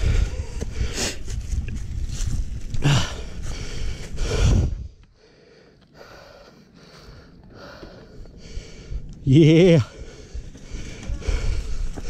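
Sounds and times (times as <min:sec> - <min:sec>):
heavy labored breathing: 0:00.0 - 0:01.6, 0:02.6 - 0:12.0
bike rumbling over dirt trail: 0:07.7 - 0:12.0.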